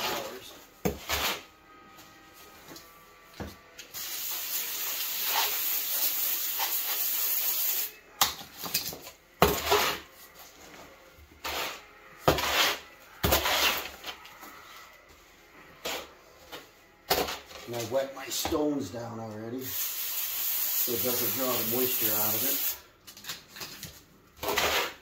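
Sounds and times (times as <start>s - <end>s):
tool scraping wet mortar: 8.7s - 10.1s, 11.4s - 14.2s, 24.4s - 25.0s.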